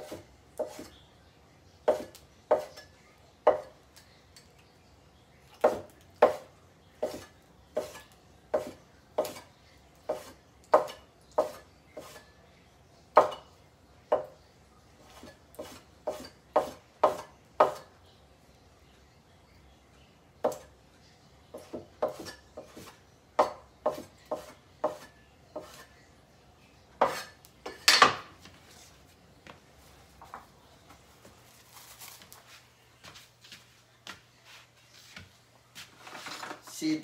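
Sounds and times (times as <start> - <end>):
knife chopping on cutting board: 0.0 - 0.9, 1.9 - 2.8, 3.4 - 3.7, 5.6 - 9.5, 10.1 - 12.3, 13.2 - 13.4, 14.1 - 14.4, 15.1 - 17.9, 20.4 - 20.7, 21.5 - 25.9, 27.0 - 28.3.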